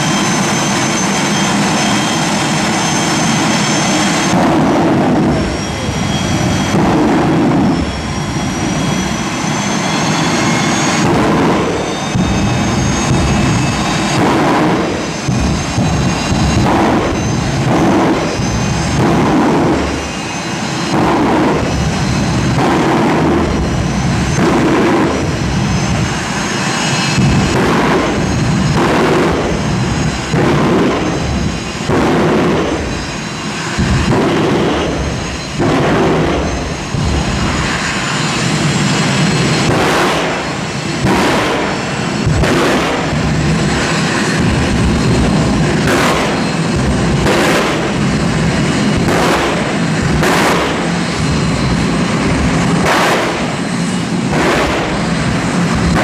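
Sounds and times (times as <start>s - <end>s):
faint high whine: 0.0s - 39.7s
race car engine rumble: 0.0s - 56.0s
loud exhaust bangs: 0.4s - 56.0s.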